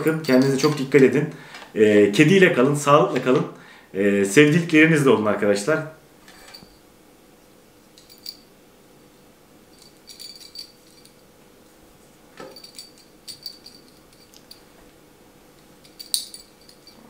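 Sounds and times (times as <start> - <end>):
small bell jingling: 0.0 - 0.9, 8.0 - 8.5, 9.7 - 11.2, 12.5 - 14.7, 15.8 - 17.0.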